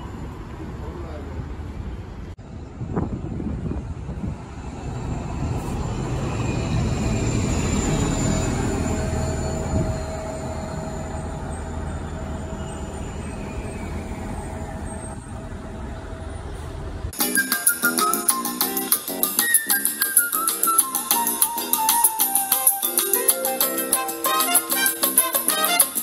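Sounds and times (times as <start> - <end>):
bus engine rumble and whine: 0.0 - 17.2.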